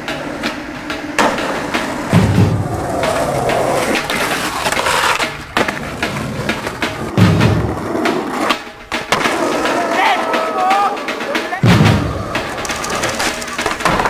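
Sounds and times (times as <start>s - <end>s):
skateboard landing thumps: 0.0s - 9.8s, 11.6s - 14.0s
skateboard clacks: 0.0s - 14.0s
skateboard rolling on concrete: 0.0s - 14.0s.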